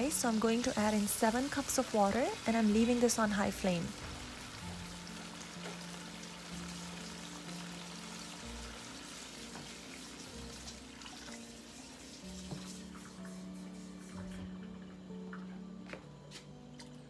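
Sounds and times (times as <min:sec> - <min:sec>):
water pouring into hot wok: 0:00.0 - 0:13.3
background music with held notes: 0:00.0 - 0:17.0.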